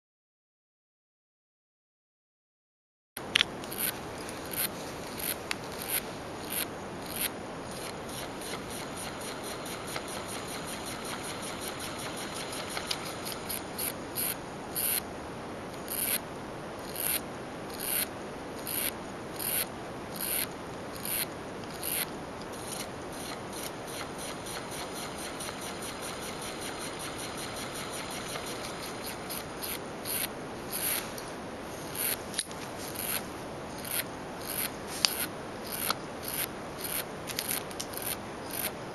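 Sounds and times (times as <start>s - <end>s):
small engine mechanical noise: 3.2s - 15.1s, 15.7s - 38.9s
sharp clicks: 3.3s - 15.0s.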